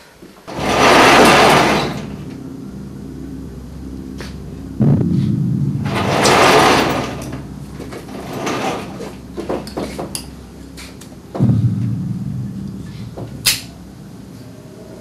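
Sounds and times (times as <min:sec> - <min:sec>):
door scraping and creaking: 0:00.5 - 0:02.4, 0:04.0 - 0:11.6
knocks and clicks: 0:04.1 - 0:13.8.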